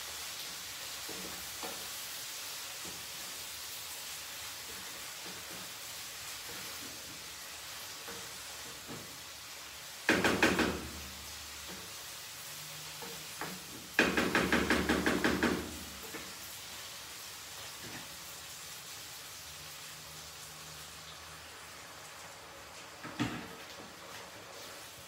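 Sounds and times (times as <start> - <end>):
food sizzling in pan: 0.0 - 25.0
wooden spatula knocking on frying pan: 1.0 - 2.0, 8.0 - 9.2, 10.0 - 12.0, 13.0 - 16.4.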